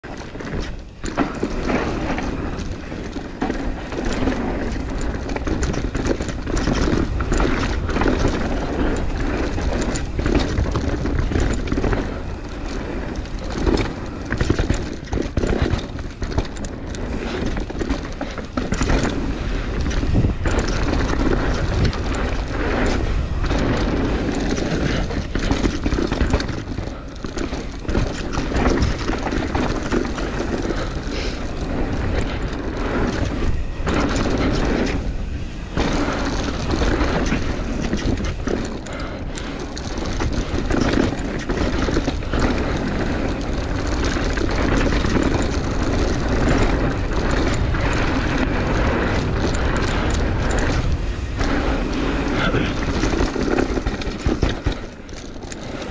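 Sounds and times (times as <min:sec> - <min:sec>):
bike knocking and rattling: 0:00.0 - 0:55.9
tyres rolling on dirt: 0:00.0 - 0:55.9
wind on microphone: 0:00.3 - 0:55.9.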